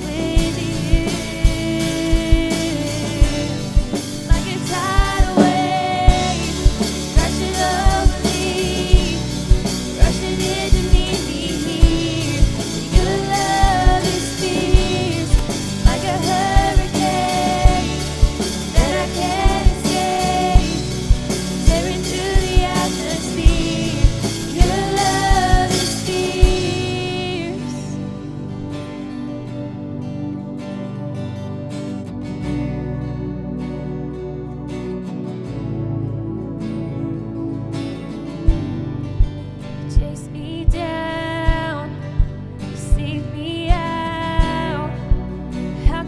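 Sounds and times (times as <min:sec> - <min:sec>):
women's backing vocals: 0:00.0 - 0:28.0, 0:39.9 - 0:46.0
woman singing lead: 0:00.0 - 0:28.9, 0:39.6 - 0:46.0
bass and guitar: 0:00.0 - 0:46.0
drum kit beat: 0:00.3 - 0:27.4.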